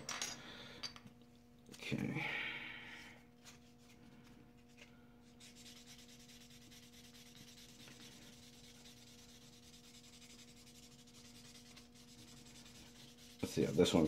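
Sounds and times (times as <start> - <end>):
buffing pad rubbing plastic: 5.4 - 14.0.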